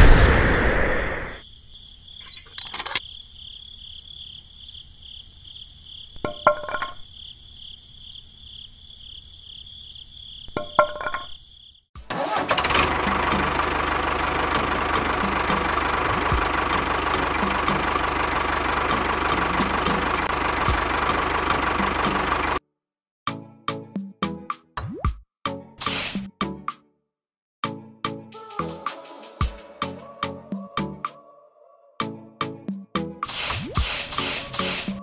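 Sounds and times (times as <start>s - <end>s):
small tractor motor running: 12.1s - 22.6s.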